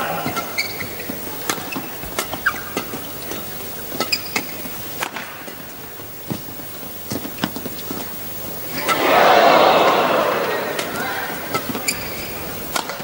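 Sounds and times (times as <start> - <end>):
shoes squeaking on court: 0.0 - 5.0, 6.0 - 13.0
racket hitting shuttlecock: 8.7 - 13.0.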